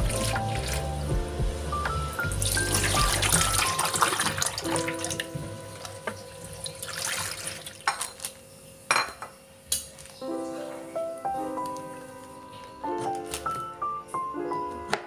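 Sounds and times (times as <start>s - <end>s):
tap water running and splashing: 0.0s - 1.2s, 2.2s - 8.2s
light background music: 0.0s - 7.1s, 10.2s - 15.0s.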